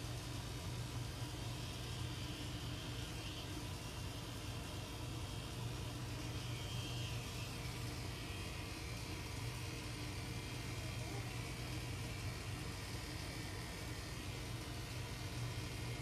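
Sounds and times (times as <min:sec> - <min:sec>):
electric motor hum: 0:00.0 - 0:16.0.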